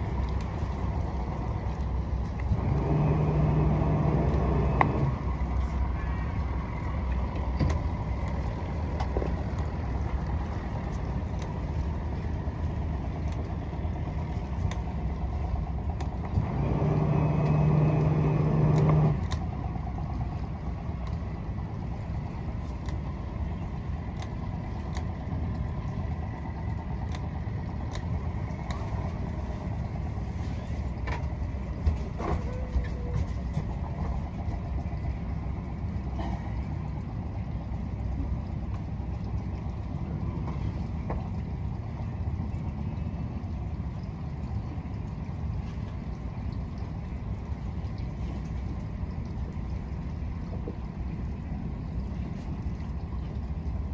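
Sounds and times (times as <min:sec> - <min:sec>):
speedboat engine low hum: 0:00.0 - 0:53.9.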